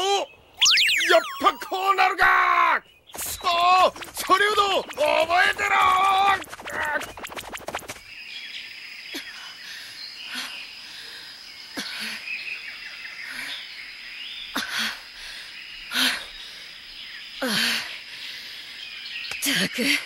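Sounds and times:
faint bird twittering: 0.0 - 20.0
small birds chirping: 0.0 - 20.0
thin steady high tone: 0.6 - 2.3.

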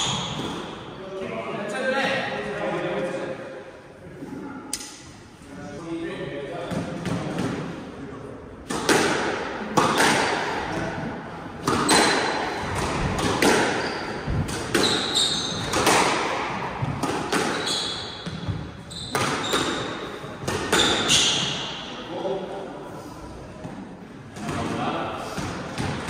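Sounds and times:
squash ball hit by rackets: 8.6 - 11.0, 11.6 - 21.7
shoes squeaking on wooden floor: 13.7 - 15.9, 17.4 - 19.9.

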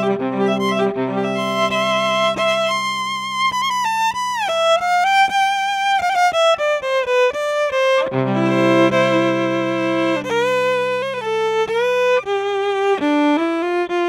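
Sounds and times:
steady low notes: 0.0 - 3.5
electric violin melody: 0.0 - 14.0.

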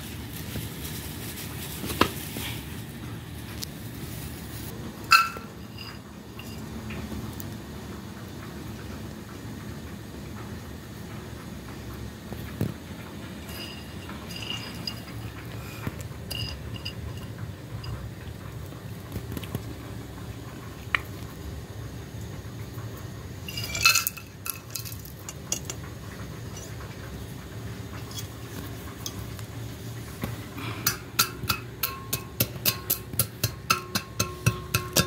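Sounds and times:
kernels clattering into metal pot: 5.0 - 7.0, 13.4 - 18.5, 23.4 - 29.4, 30.2 - 35.0
wooden pestle pounding in metal pot: 30.8 - 35.0.

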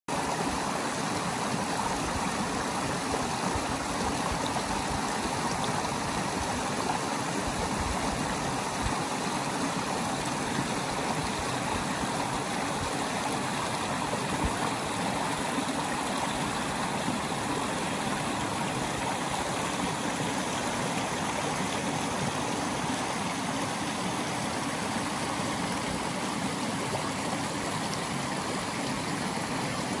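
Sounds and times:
brook flowing over rocks: 0.1 - 30.0.

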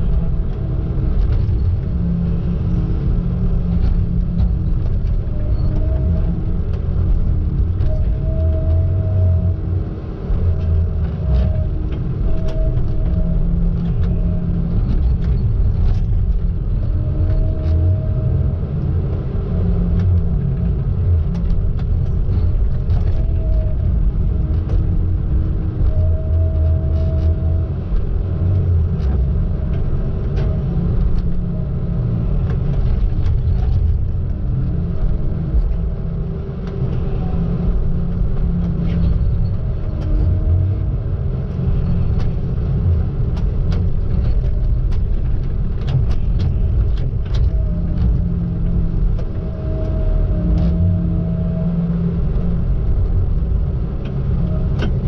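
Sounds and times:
diesel engine low rumble: 0.0 - 55.0
sharp clicks and knocks: 41.3 - 50.9.

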